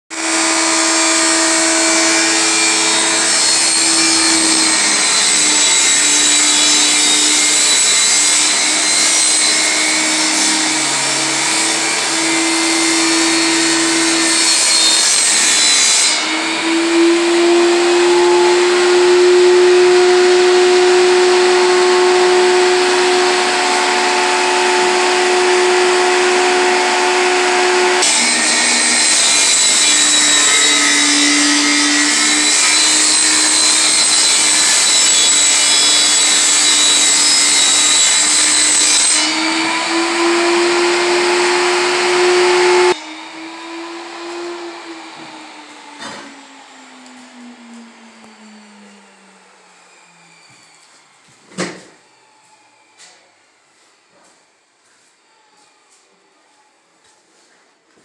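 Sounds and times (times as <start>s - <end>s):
machine motor humming loudly: 16.4s - 28.0s, 39.3s - 50.1s.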